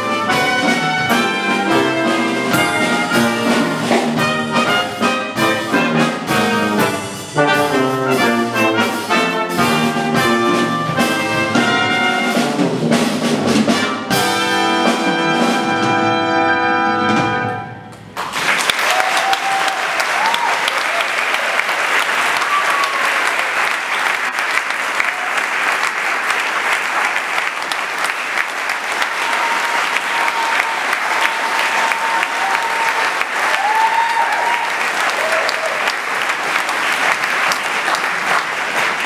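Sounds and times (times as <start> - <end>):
brass ensemble chord: 0.0 - 17.9
audience applause: 18.1 - 39.0.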